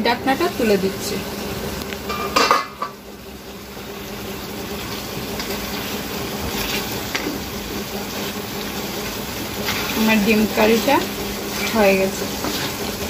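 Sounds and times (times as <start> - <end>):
metal clank on a pan: 2.1 - 3.0
wooden spatula stirring curry: 8.1 - 13.0.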